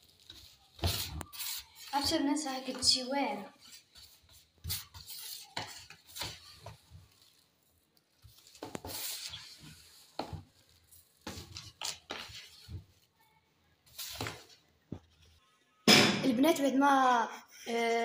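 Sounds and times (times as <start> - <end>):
grainy semolina rustling: 0.0 - 15.5.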